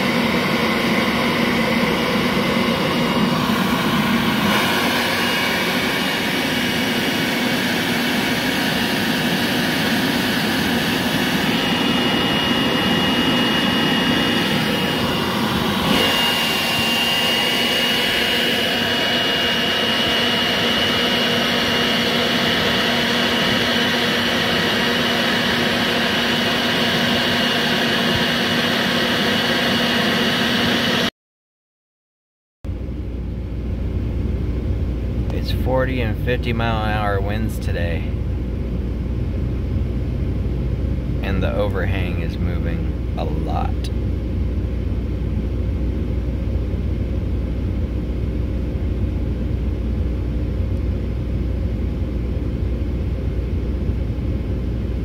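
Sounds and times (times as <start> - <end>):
battery blower running: 0.0 - 31.1
low rumble: 32.7 - 55.0.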